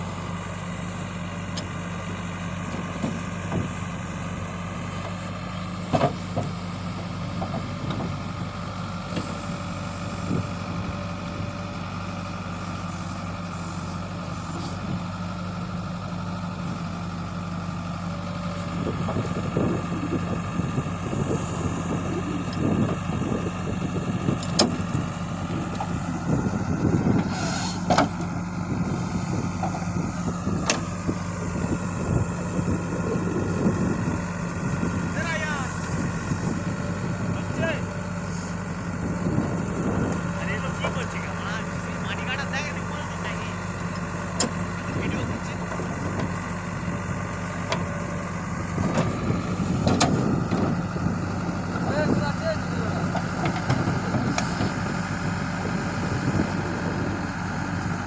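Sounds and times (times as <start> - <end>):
diesel engine under load: 0.0 - 58.0
earth scraping: 18.4 - 58.0
sharp metal clunks: 27.2 - 28.3.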